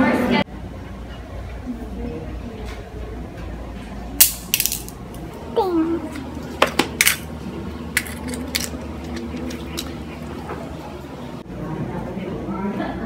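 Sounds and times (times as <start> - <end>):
small hard objects clicking together: 4.2 - 5.2, 6.8 - 7.2, 8.0 - 10.0.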